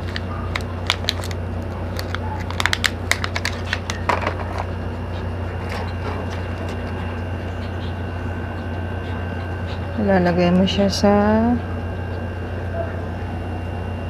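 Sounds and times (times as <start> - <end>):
plastic bag crinkling: 0.0 - 4.8
steady low hum: 0.0 - 14.0.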